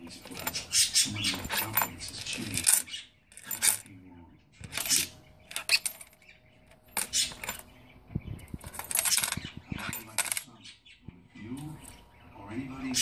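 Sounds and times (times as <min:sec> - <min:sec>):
small metal bells jingling: 0:08.6 - 0:10.4.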